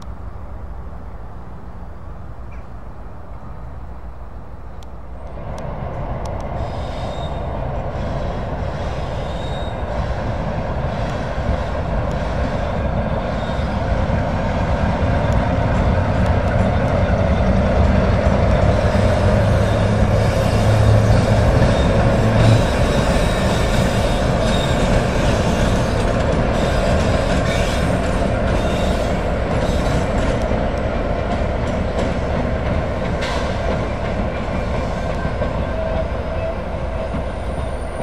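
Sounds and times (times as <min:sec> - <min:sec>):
diesel locomotive engine hum: 0:00.0 - 0:38.0
wheel and rail noise: 0:00.0 - 0:38.0.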